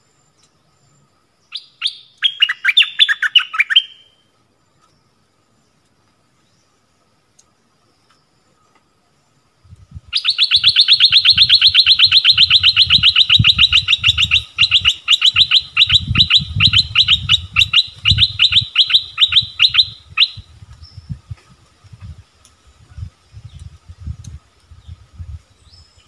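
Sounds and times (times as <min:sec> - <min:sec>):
songbird trilling: 0:00.4 - 0:06.8, 0:09.9 - 0:21.4.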